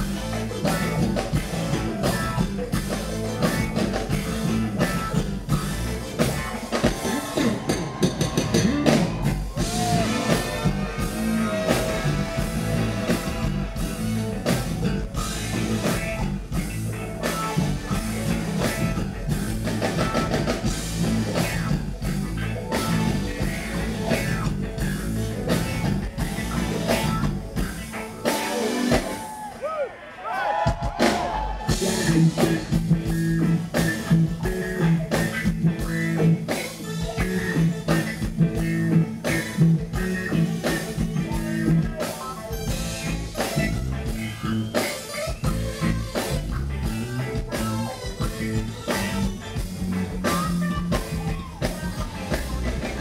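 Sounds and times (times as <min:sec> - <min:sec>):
electric bass: 0:00.0 - 0:29.5, 0:31.0 - 0:53.0
drum kit beat: 0:00.0 - 0:29.7, 0:30.5 - 0:53.0
guitars: 0:00.0 - 0:53.0
keyboards: 0:00.0 - 0:53.0
person singing: 0:50.2 - 0:53.0.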